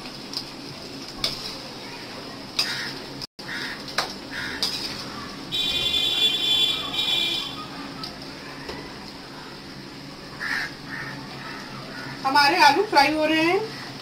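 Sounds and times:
potatoes frying in hot oil: 0.0 - 14.0
metal spoon scraping a pan: 4.4 - 5.2.

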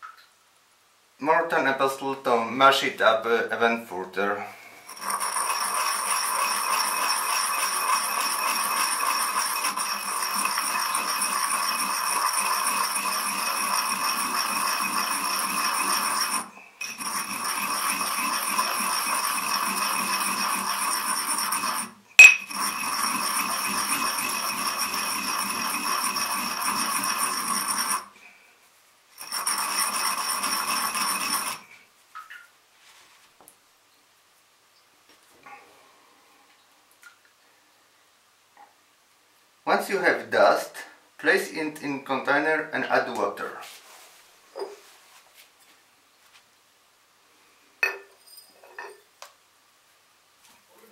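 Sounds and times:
pestle grinding in a ceramic mortar: 4.9 - 28.1, 29.2 - 31.6.

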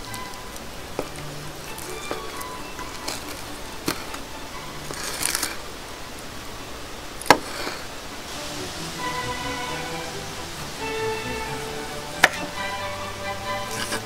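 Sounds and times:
crackling scrape: 0.1 - 4.2, 4.8 - 5.7, 7.3 - 7.9, 13.6 - 14.0.

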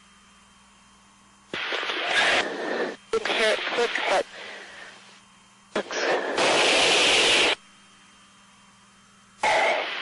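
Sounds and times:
faint steady hum: 0.0 - 10.0
intercom static hiss bursts: 1.5 - 7.6, 9.4 - 10.0.

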